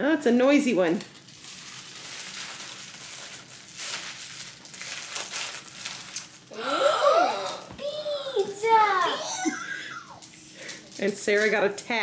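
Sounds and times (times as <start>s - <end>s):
package wrapping crackling: 1.0s - 6.5s, 10.1s - 11.6s.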